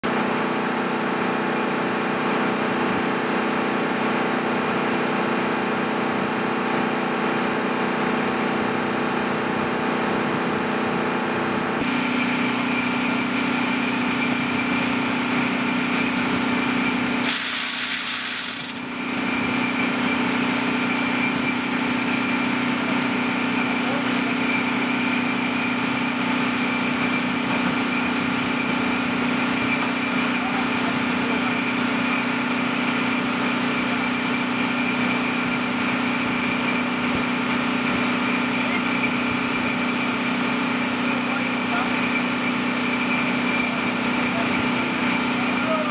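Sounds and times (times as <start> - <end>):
high whine: 11.8 - 22.2
machinery hum: 11.8 - 25.0
rush of hiss: 17.2 - 18.8.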